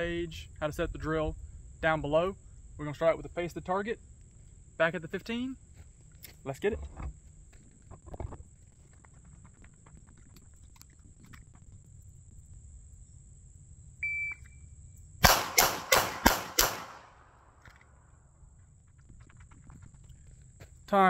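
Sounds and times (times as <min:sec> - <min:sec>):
shot timer beep: 0:14.0 - 0:14.6
pistol shots: 0:15.2 - 0:17.4.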